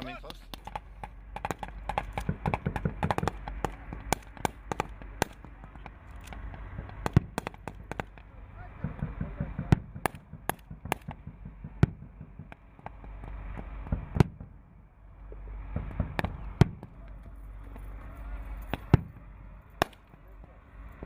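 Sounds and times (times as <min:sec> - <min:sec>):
low steady rumble: 0:00.0 - 0:21.0
rifle shots: 0:01.4 - 0:12.7.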